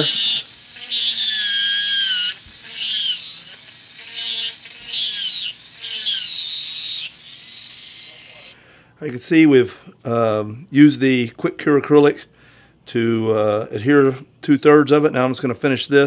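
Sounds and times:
dental handpiece grinding whine: 0.0 - 8.6.

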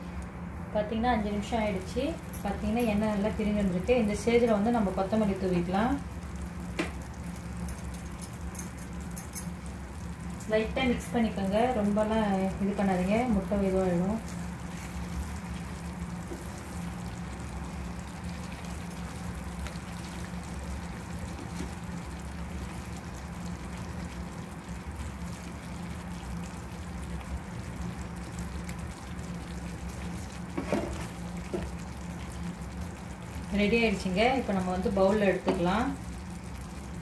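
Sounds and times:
steady low hum: 0.0 - 37.0
gravy simmering in pan: 1.4 - 37.0
wooden spatula stirring: 14.2 - 16.8.

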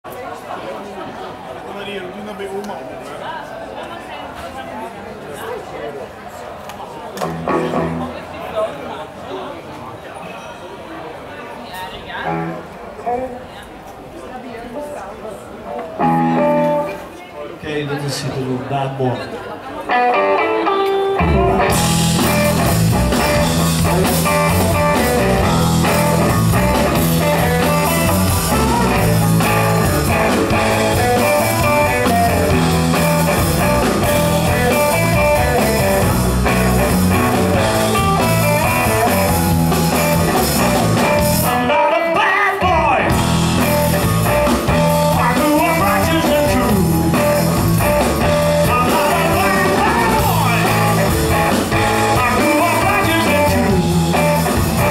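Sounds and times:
bass guitar: 7.2 - 8.3, 19.9 - 54.9
electric guitars: 7.2 - 8.4, 12.2 - 13.6, 15.8 - 17.2, 19.6 - 54.9
drum kit: 20.7 - 41.8, 42.6 - 54.9.

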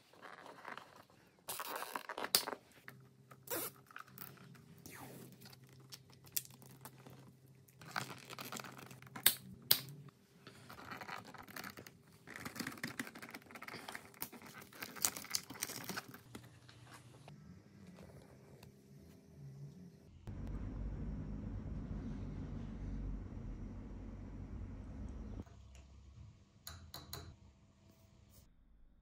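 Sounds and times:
cables rustling and crinkling: 0.0 - 9.5, 10.3 - 18.8.

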